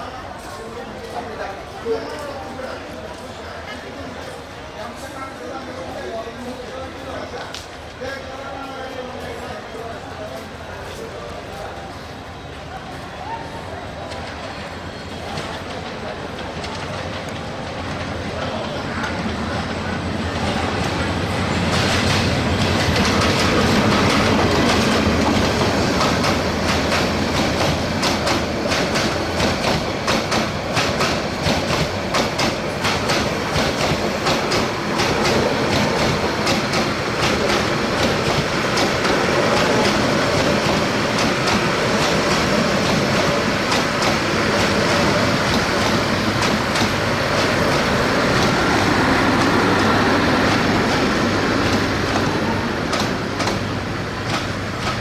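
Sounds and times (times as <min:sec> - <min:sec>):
train wheels rumbling on rail: 0:00.0 - 0:55.0
wheels clacking over rail joints: 0:20.4 - 0:55.0.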